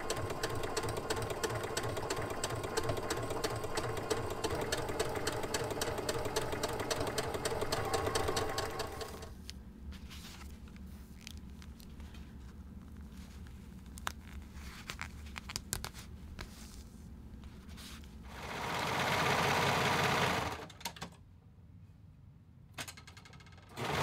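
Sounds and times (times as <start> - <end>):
sewing machine stitching: 0.0 - 9.3, 18.3 - 21.0, 23.6 - 24.0.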